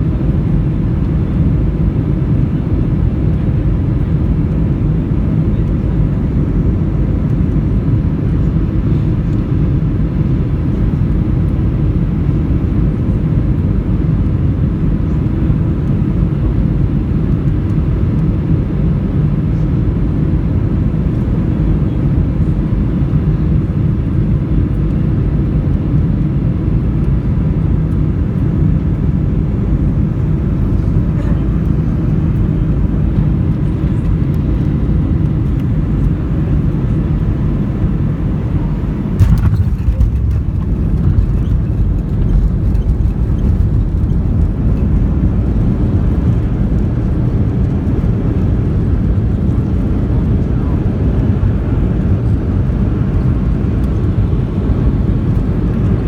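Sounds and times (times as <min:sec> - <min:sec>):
jet engine rumble in cabin: 0:00.0 - 0:56.0
rushing airflow: 0:37.2 - 0:47.4.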